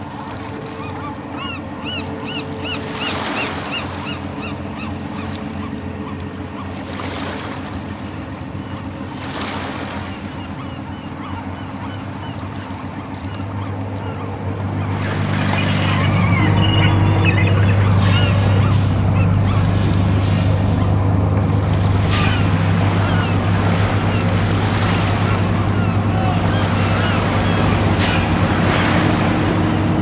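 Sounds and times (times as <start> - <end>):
waves washing in: 0.0 - 30.0
repeated bird calls: 0.6 - 6.8, 9.8 - 21.3, 22.0 - 29.9
low hum: 11.3 - 30.0.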